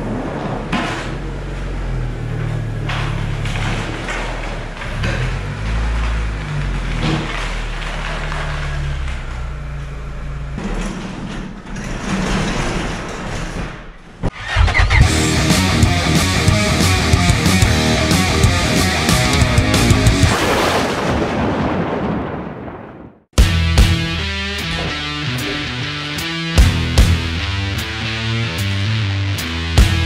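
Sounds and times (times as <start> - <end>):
car engine running at low speed: 0.0 - 11.3
garage door closing: 0.0 - 15.2.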